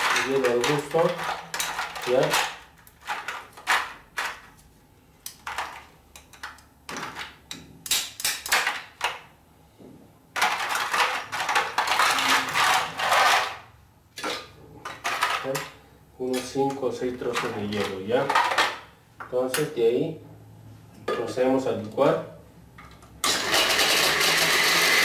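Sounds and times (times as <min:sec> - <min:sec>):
ice rattling in container: 0:00.0 - 0:03.8.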